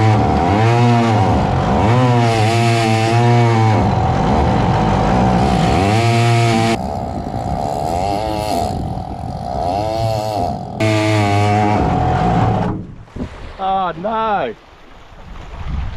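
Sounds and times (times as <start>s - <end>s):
two-stroke engine revving: 0.0s - 12.8s.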